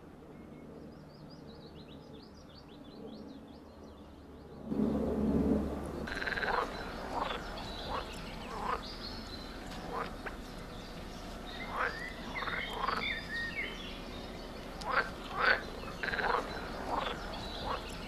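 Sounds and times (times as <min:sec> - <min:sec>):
outdoor background noise: 0:00.0 - 0:18.0.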